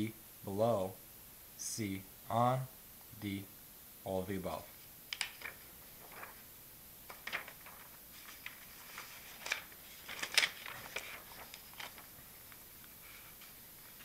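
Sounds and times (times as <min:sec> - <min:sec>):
paper rustling and crinkling: 0:05.1 - 0:14.0.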